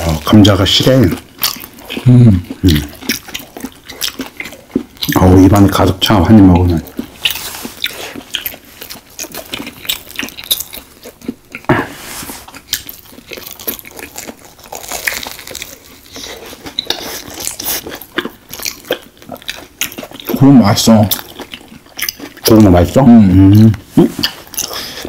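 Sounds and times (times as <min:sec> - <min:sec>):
crunchy chewing: 0:00.0 - 0:25.0
wet mouth sounds: 0:23.4 - 0:25.0.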